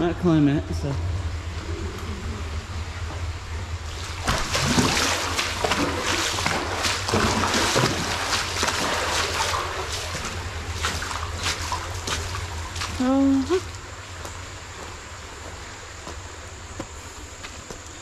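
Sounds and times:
footsteps splashing through water: 4.2 - 18.0.

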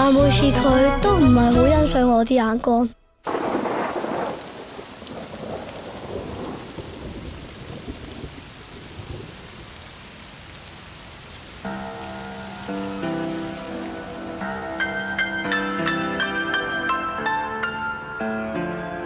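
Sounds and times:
thunder rumbling: 3.2 - 17.1
rain pouring: 3.2 - 19.0.

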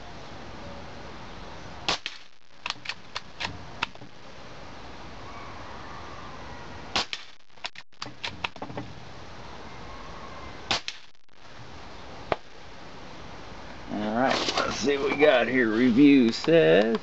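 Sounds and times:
air rifle shots: 1.9 - 3.6, 6.9 - 8.6, 10.7 - 11.2.

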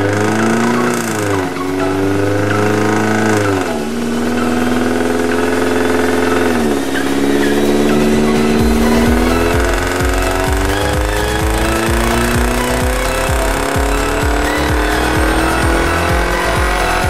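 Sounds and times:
car engine revving on dyno: 0.0 - 17.0
rapid low thuds: 8.1 - 17.0.

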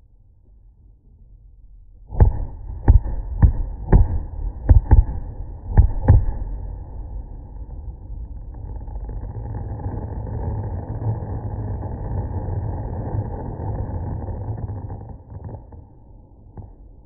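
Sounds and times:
continuous low rumble: 0.0 - 17.0
fireworks deep bangs: 2.1 - 6.7.

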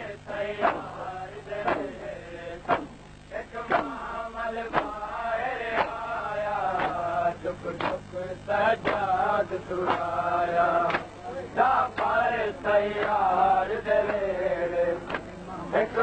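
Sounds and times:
sharp beat: 2.6 - 4.1.

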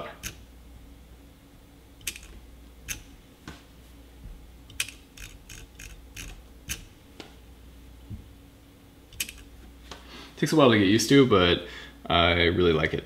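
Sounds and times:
mouse scroll wheel clicks: 2.0 - 3.1, 4.7 - 6.9, 9.2 - 9.4.

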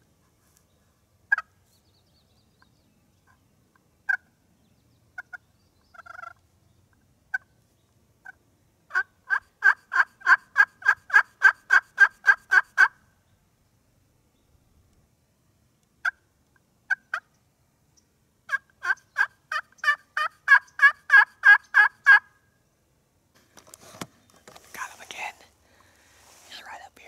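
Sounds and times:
turkey call clucks: 1.3 - 1.6, 5.2 - 6.4, 8.2 - 13.0, 16.0 - 16.3, 16.9 - 17.4, 18.5 - 22.4
turkey call yelps: 5.2 - 6.4, 8.2 - 13.0, 18.5 - 22.4.

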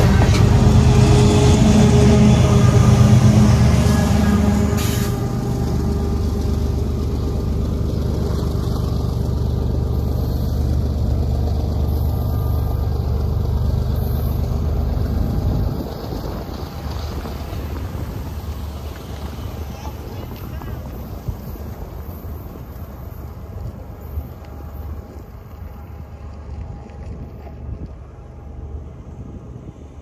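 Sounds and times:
locomotive engine drone: 0.0 - 30.0
train rumbling past: 0.0 - 30.0.

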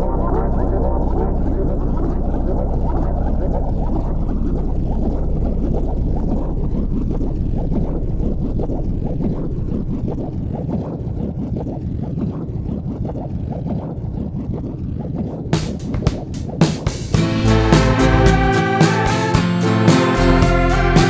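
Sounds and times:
snowbike engine drone: 0.0 - 13.0.

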